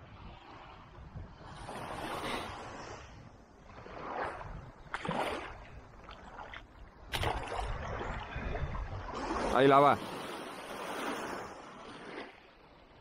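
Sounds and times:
small waves washing on sand: 0.0 - 13.0
fish splashing in shallows: 3.9 - 8.4.

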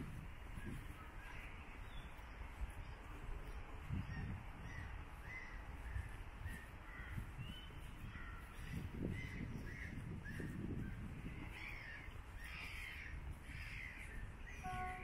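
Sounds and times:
birds giving short calls: 11.4 - 15.0.

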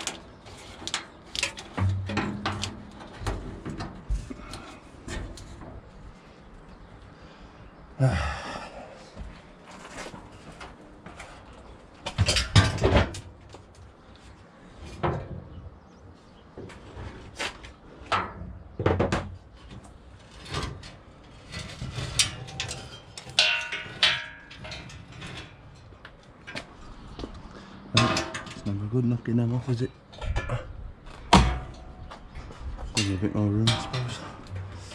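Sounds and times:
hand tools clattering: 21.6 - 25.8, 28.0 - 28.8, 32.9 - 34.9.

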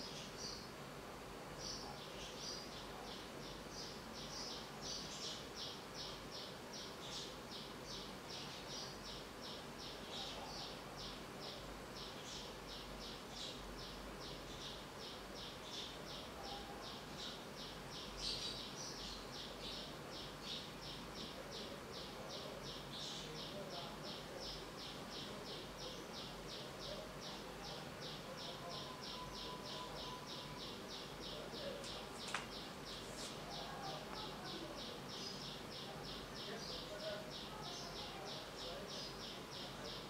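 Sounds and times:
rhythmic high chirping: 28.1 - 34.1.

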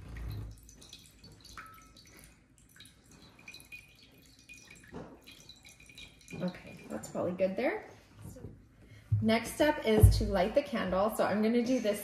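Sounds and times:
water trickling into a plate: 0.0 - 7.3
low thump: 9.1 - 10.5.

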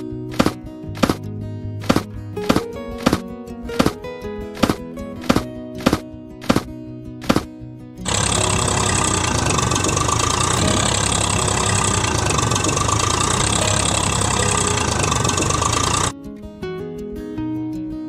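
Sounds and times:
truck engine running: 8.0 - 16.1.

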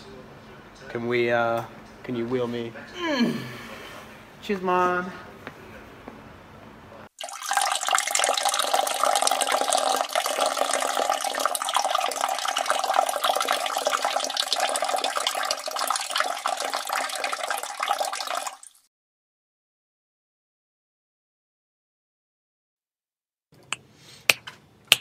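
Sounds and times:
person urinating into urinal: 7.1 - 18.9.

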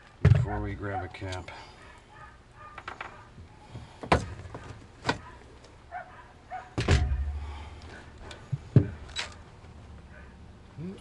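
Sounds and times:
loud low thud: 6.8 - 7.6.

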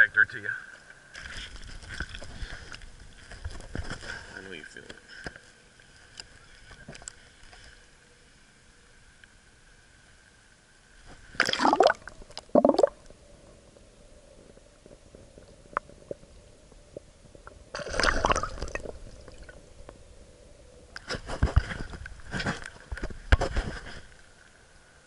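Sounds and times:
faint underwater hum: 0.0 - 25.0
water sloshing and gurgling: 11.2 - 13.1, 17.7 - 19.6
water splashing: 11.3 - 13.0, 17.8 - 19.6.

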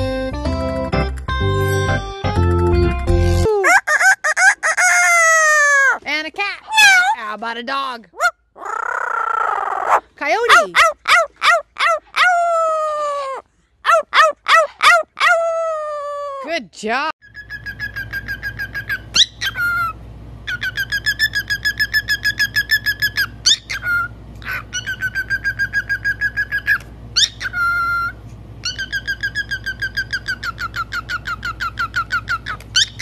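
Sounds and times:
cockatiel chirping: 17.2 - 19.9, 20.5 - 33.0.

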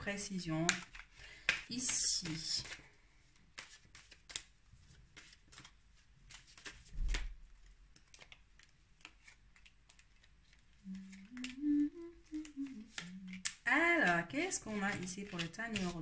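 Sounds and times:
cards being shuffled: 0.6 - 16.0
woman humming: 10.8 - 13.5.

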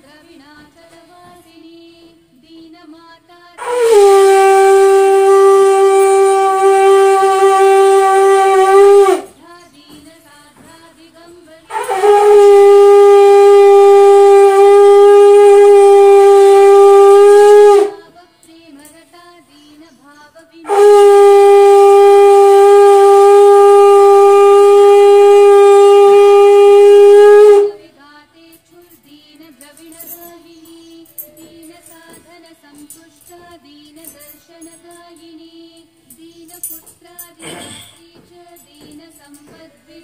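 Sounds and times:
conch shell blasts: 3.6 - 9.4, 11.7 - 18.1, 20.6 - 27.9.

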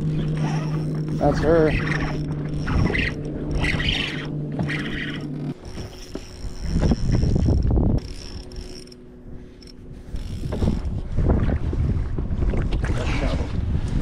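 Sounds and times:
fishing reel whirring and clicking: 0.0 - 11.0.

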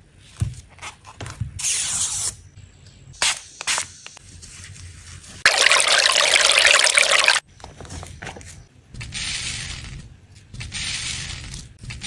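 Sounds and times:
glitter pouring from squeeze bottle: 5.4 - 7.4.

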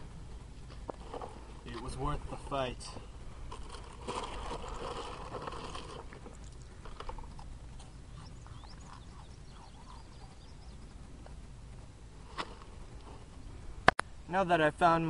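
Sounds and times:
cracker box and bag rustling: 3.5 - 9.3
faint clicks and crackles: 3.5 - 14.1.

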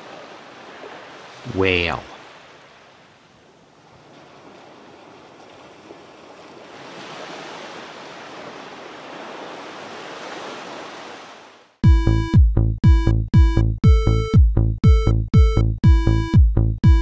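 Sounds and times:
ocean waves rushing: 0.0 - 11.8
electronic music with heavy beat: 11.8 - 17.0.

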